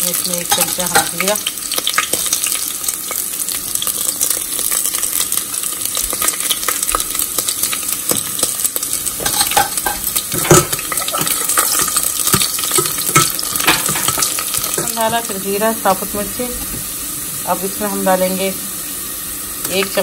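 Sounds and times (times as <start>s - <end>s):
garlic and chillies sizzling in oil: 0.0s - 20.0s
metal spoon scraping a pot: 9.2s - 15.0s.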